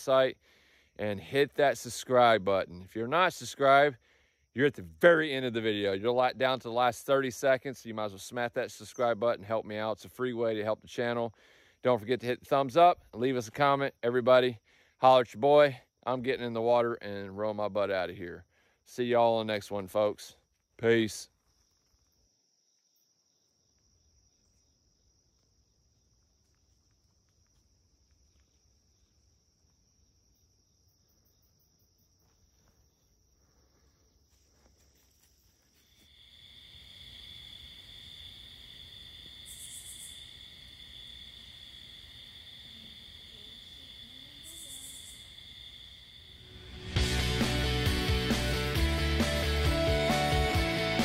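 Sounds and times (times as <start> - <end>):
insects trilling: 21.3 - 46.9.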